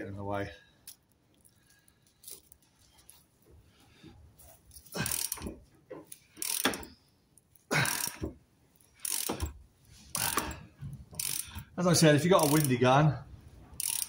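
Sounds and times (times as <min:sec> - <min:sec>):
ratchet wrench clicking: 0:05.0 - 0:05.5, 0:06.1 - 0:06.9, 0:07.8 - 0:08.3, 0:08.9 - 0:11.7, 0:12.3 - 0:12.8, 0:13.8 - 0:14.0.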